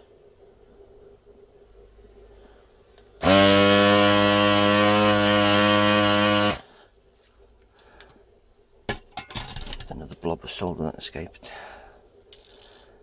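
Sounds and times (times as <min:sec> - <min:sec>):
desoldering pump buzzing: 0:03.2 - 0:06.7.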